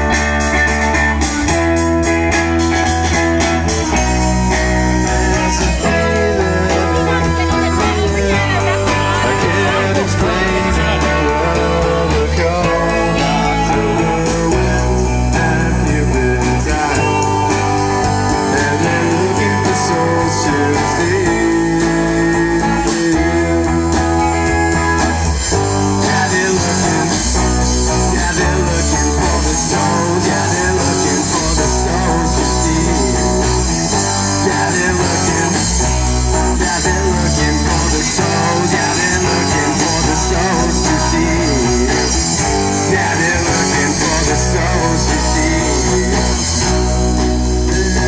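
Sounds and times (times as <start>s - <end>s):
bass guitar: 0.0s - 48.0s
drum kit: 0.0s - 48.0s
electric guitars: 0.0s - 48.0s.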